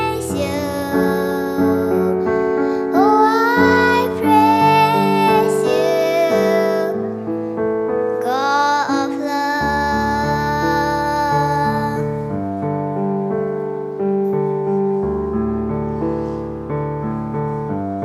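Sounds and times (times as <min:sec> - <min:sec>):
girl singing: 0:00.0 - 0:07.2, 0:08.1 - 0:12.5
piano backing track: 0:00.0 - 0:18.0.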